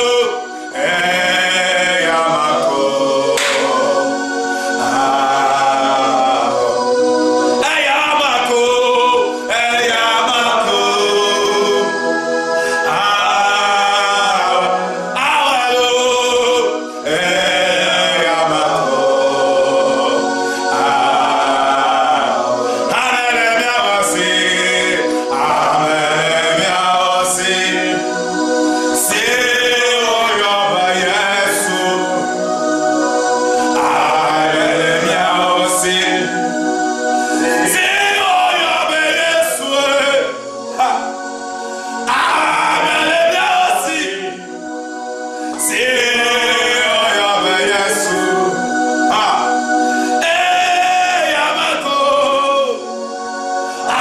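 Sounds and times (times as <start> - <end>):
man singing worship song: 0.0 - 54.0.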